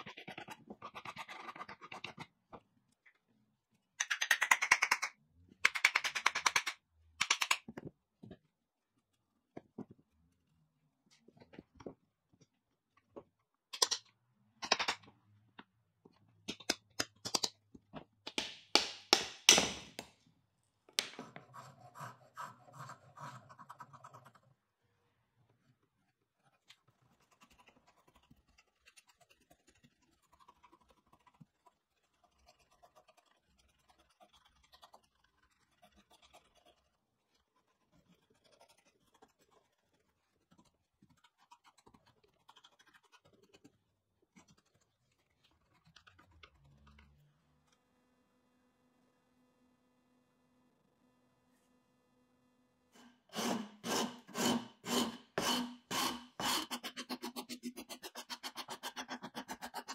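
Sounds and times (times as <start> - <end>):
scraping strokes: 53.0 - 59.9.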